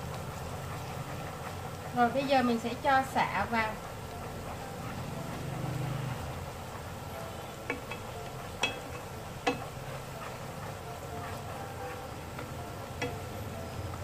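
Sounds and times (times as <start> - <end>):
garlic sizzling in hot oil: 0.0 - 14.0
chopsticks clicking against pan: 7.6 - 11.5, 12.3 - 13.4.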